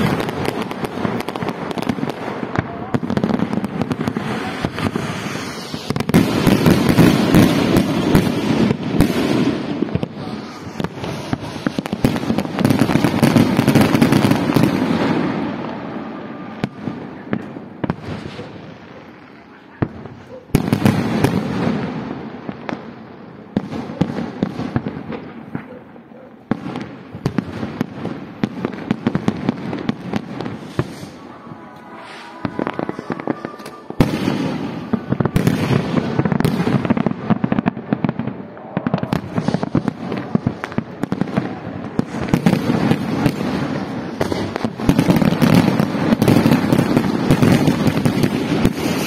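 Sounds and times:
fireworks crackling: 0:00.0 - 0:49.0
fireworks shells bursting: 0:29.6 - 0:41.0.

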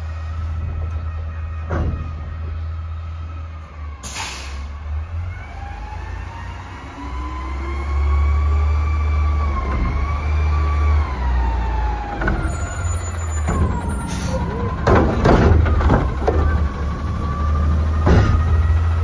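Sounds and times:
garbage truck diesel engine: 0:00.0 - 0:19.0.

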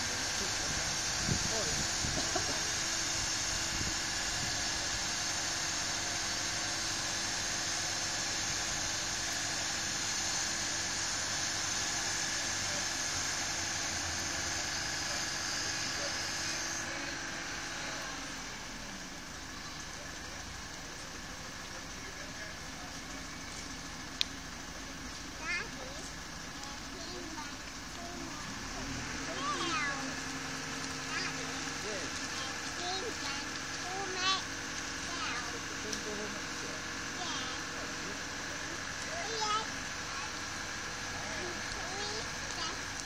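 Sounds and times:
heavy vehicle engine running: 0:00.0 - 0:43.0.

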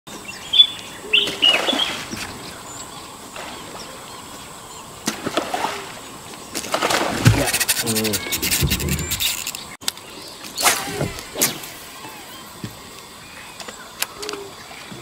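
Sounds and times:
small birds chirping: 0:00.1 - 0:05.1, 0:07.4 - 0:10.6
fish splashing water: 0:05.0 - 0:09.6.

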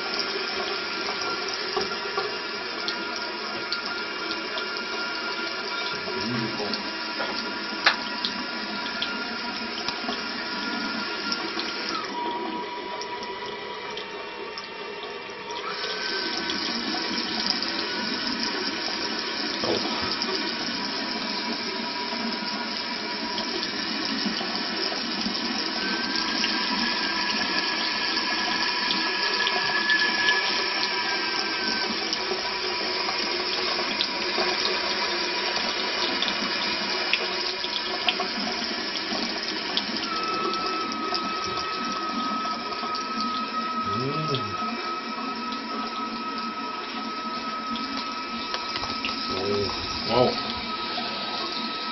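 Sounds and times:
tap water running into washbasin: 0:00.0 - 0:51.9
whistle in water stream: 0:25.6 - 0:32.4, 0:39.6 - 0:51.9.

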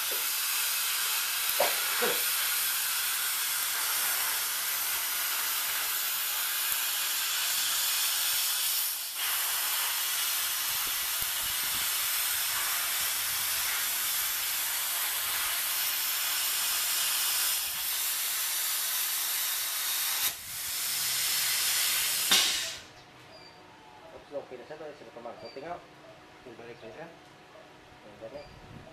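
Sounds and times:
plasma cutter hissing: 0:00.0 - 0:22.9.

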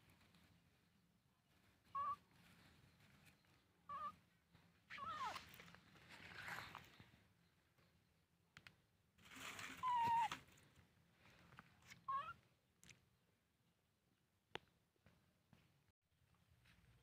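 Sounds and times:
baby monkey squeaky calls: 0:01.9 - 0:02.2, 0:03.9 - 0:04.2, 0:04.9 - 0:05.5, 0:09.8 - 0:10.3, 0:12.1 - 0:12.4.

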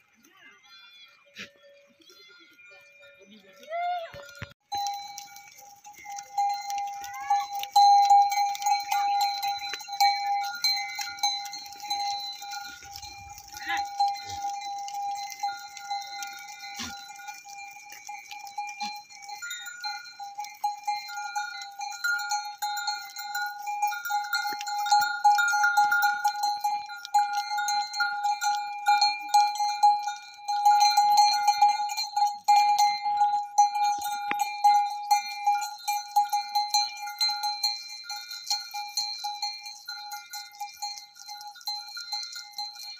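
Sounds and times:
goat bells clanking: 0:00.0 - 0:42.9.

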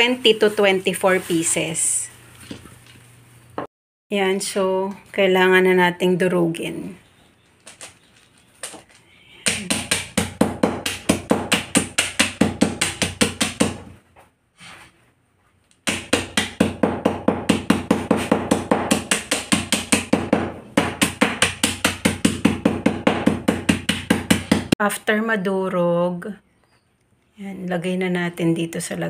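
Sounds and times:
hammer pounding on concrete: 0:09.4 - 0:14.0, 0:15.8 - 0:24.8.

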